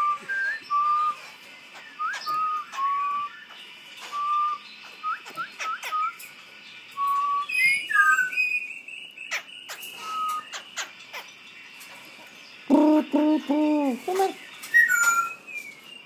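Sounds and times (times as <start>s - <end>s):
songbird whistling: 0.0s - 11.4s, 12.6s - 16.0s
songbird chirps: 0.0s - 16.0s.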